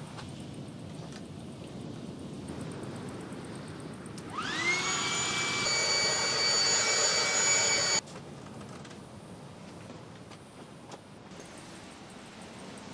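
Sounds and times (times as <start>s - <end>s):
electric air pump whining: 4.3s - 8.0s.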